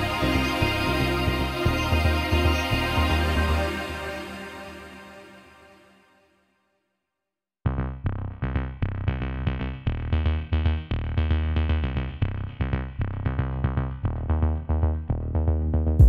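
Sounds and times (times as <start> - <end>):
electronic music with drum machine: 0.0 - 5.0.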